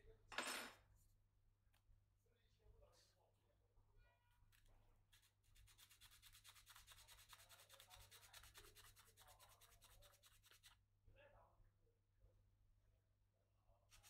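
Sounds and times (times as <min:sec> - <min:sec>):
hand-sanding gourd: 0:05.1 - 0:10.8.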